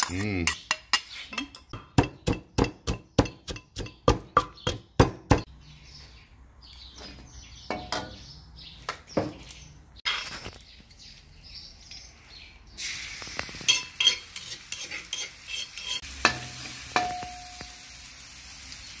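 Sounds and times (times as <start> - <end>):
bird chirps: 0.5 - 12.8
pestle pounding in mortar: 1.7 - 5.5.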